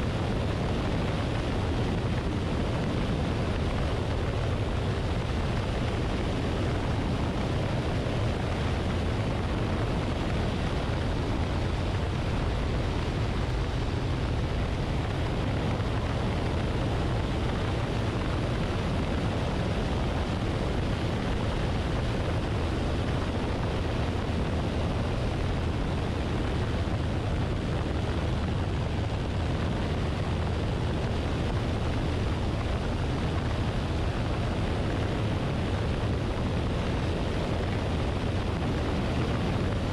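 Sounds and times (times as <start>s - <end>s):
aircraft engine and propeller drone: 0.0s - 39.9s
wind rushing over microphone: 0.0s - 39.9s.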